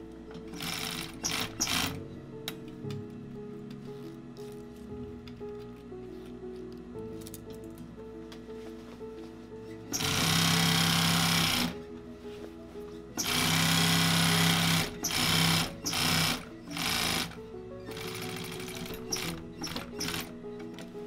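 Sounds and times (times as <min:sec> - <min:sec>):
background music: 0:00.0 - 0:21.0
sewing machine stitching: 0:00.5 - 0:02.0, 0:09.9 - 0:11.8, 0:13.2 - 0:20.3.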